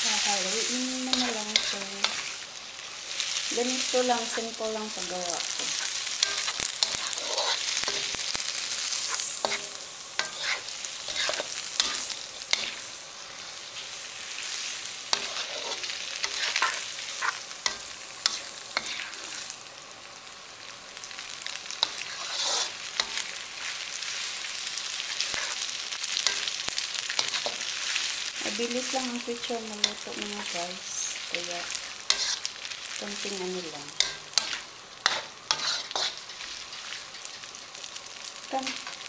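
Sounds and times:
food sizzling in a wok: 0:00.0 - 0:39.0
spatula scraping a pan: 0:05.5 - 0:12.9, 0:15.1 - 0:19.5, 0:21.8 - 0:23.4, 0:25.2 - 0:28.1, 0:32.1 - 0:32.5, 0:34.0 - 0:37.4.

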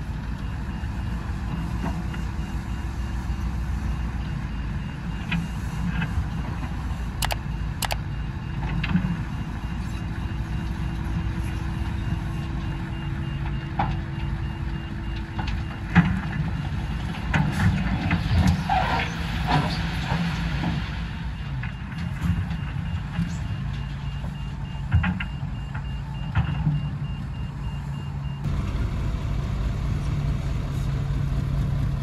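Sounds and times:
heavy diesel machinery rumbling: 0:00.0 - 0:32.0
reversing alarm beeping: 0:00.4 - 0:16.6, 0:21.3 - 0:28.5.

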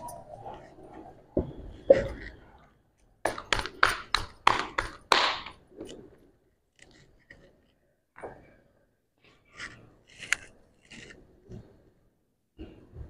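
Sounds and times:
dough slapped between palms: 0:03.3 - 0:05.6.

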